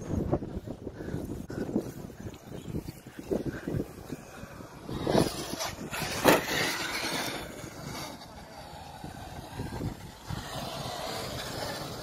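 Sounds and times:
rc truck landing thud: 4.9 - 8.2.

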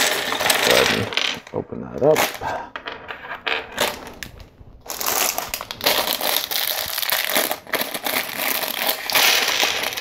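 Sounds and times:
plastic bricks rattling onto table: 0.0 - 1.5, 2.1 - 10.0
plastic bag crinkling: 3.8 - 10.0.

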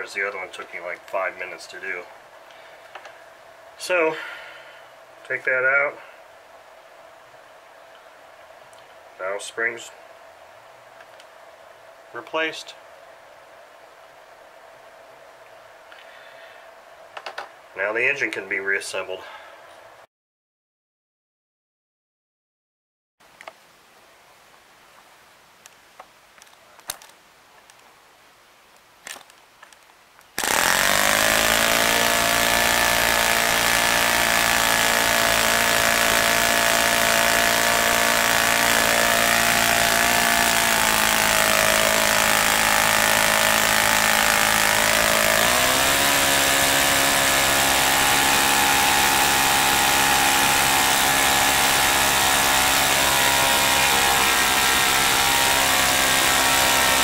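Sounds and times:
model engine running: 30.4 - 57.0.

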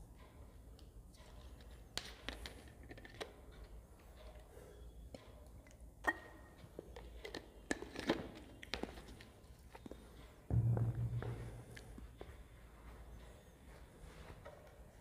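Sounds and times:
low hum: 10.5 - 12.9.

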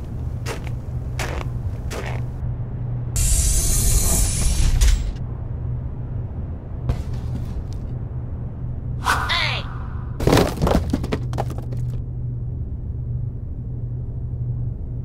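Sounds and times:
low drone of background music: 0.0 - 3.9, 4.7 - 9.0, 12.0 - 15.0.

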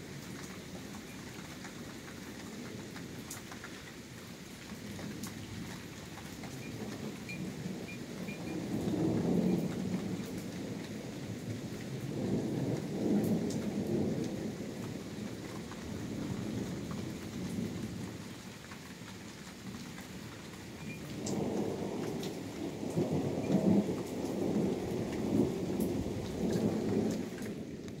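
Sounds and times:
thunder rumbling: 6.6 - 18.3, 20.8 - 28.0.

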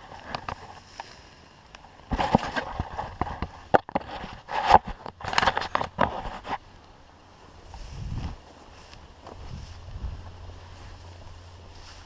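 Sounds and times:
footsteps through tall grass: 7.3 - 12.0.

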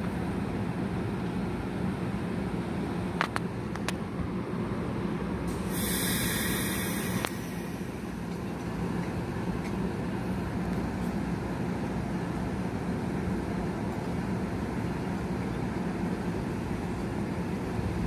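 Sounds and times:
train low hum: 0.0 - 18.0
air hissing from train: 5.4 - 9.9.

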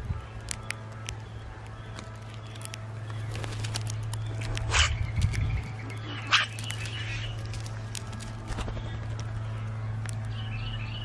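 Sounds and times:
harsh scratchy bird calls: 0.2 - 11.0
beaks clicking on seed: 0.3 - 9.4, 10.0 - 10.4.

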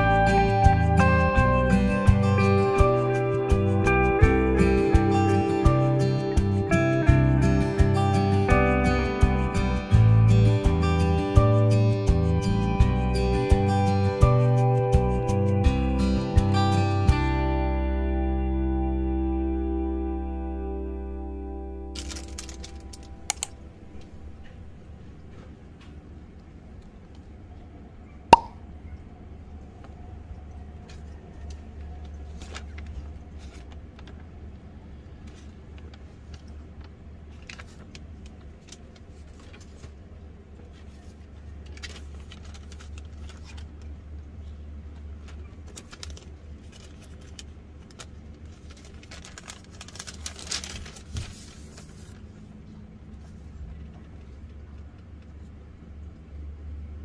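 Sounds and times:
low steady hum: 0.0 - 57.0
plastic crinkling: 21.9 - 25.4, 45.6 - 52.2
sharp click: 23.2 - 23.6.

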